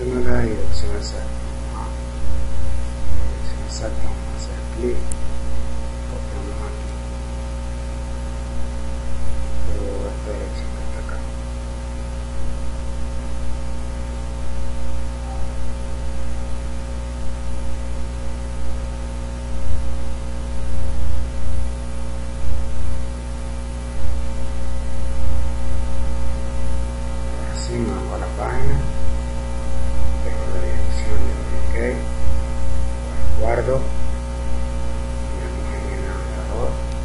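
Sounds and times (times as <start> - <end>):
electrical mains hum: 0.0 - 37.0
microphone hiss: 0.0 - 37.0.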